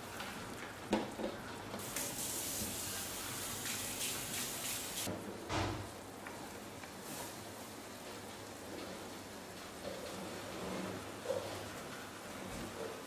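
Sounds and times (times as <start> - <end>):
sauce bubbling in a pan: 0.0 - 5.1.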